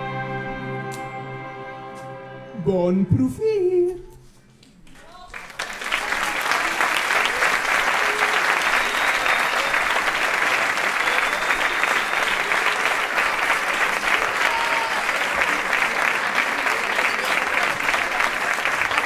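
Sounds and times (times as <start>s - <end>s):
audience applauding: 4.6s - 19.0s.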